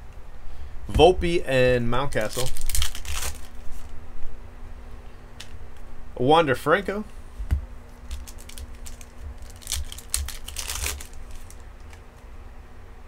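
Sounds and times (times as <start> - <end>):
foil wrappers crinkling: 2.1 - 3.9, 7.9 - 12.0
cards clicking: 8.0 - 12.1.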